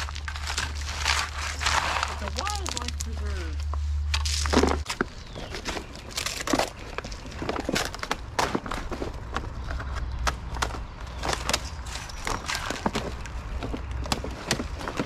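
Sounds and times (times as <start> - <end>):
plastic sheeting crinkling: 0.0 - 4.9.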